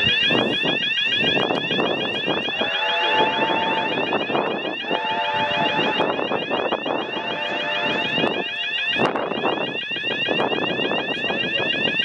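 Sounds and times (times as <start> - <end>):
level crossing bells ringing: 0.0 - 12.0
steam locomotive exhaust beating: 1.5 - 9.7.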